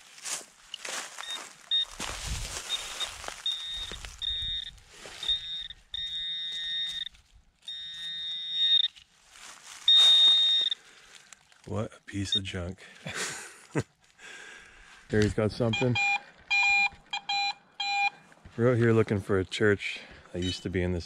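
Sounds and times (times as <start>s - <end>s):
scuffing of dirt: 0.0s - 11.7s
metal detector beeping: 0.7s - 9.1s, 9.7s - 10.8s, 15.5s - 18.2s, 20.4s - 20.8s.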